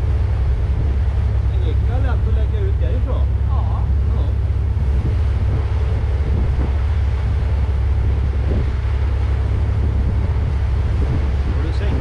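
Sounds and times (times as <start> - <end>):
low rumble of boat: 0.0 - 12.0
wind buffeting microphone: 0.0 - 12.0.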